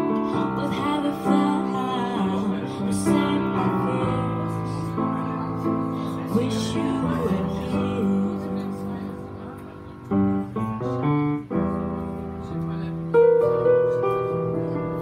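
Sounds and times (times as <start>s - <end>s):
woman singing into microphone: 0.2s - 9.2s.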